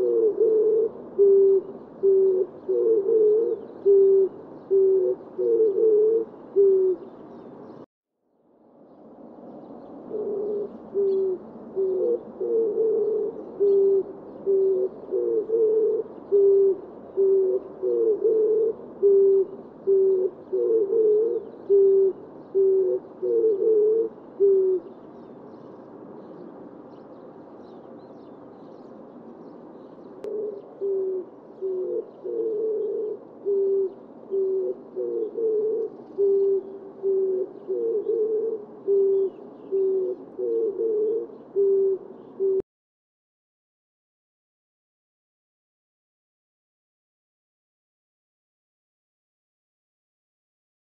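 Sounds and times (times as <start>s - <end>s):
dove cooing: 0.0s - 7.8s, 10.0s - 27.8s, 30.0s - 42.6s.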